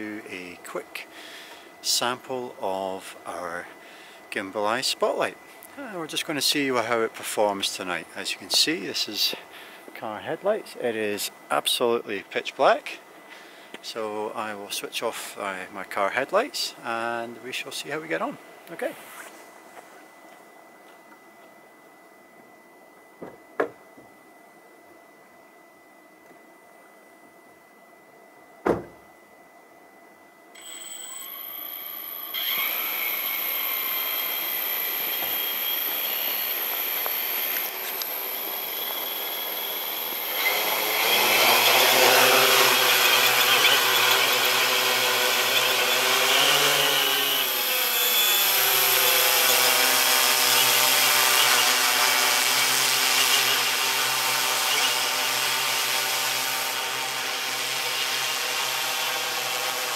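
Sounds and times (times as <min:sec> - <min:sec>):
drone motors whirring: 0:30.6 - 0:59.9.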